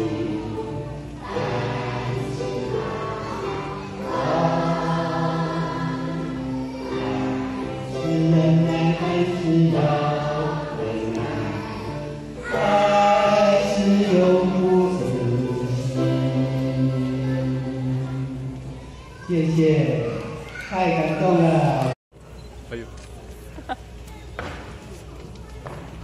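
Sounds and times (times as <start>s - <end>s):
children's choir singing: 0.0s - 19.9s.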